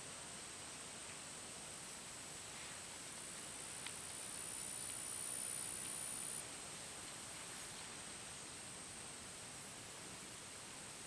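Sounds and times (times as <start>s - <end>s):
insect hum and hiss: 0.0s - 11.0s
high-pitched insect trill: 0.3s - 8.7s
faint click: 3.8s - 4.2s.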